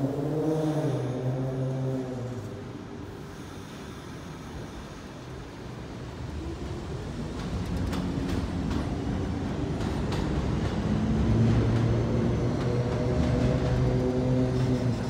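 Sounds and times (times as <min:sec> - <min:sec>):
train rumble: 0:00.0 - 0:15.0
train wheels clicking over rail joints: 0:07.0 - 0:15.0.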